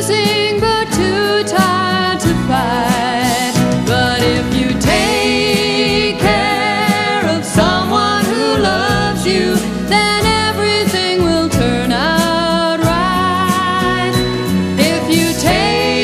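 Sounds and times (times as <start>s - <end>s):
woman and man singing duet: 0.0s - 16.0s.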